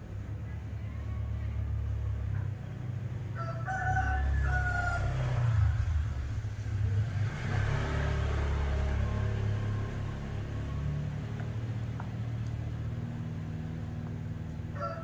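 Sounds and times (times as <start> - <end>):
rooster crowing: 3.3 - 5.8, 14.7 - 15.0.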